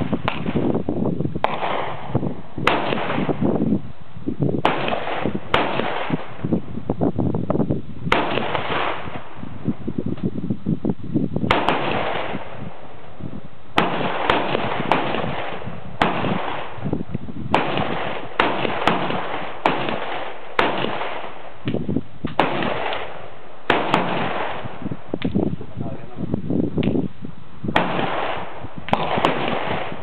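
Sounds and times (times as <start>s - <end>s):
gunshots with echo: 1.4s - 3.4s, 4.6s - 6.3s, 8.1s - 9.2s, 11.5s - 12.6s, 13.8s - 16.8s, 17.5s - 21.4s, 22.4s - 24.8s, 27.8s - 30.0s.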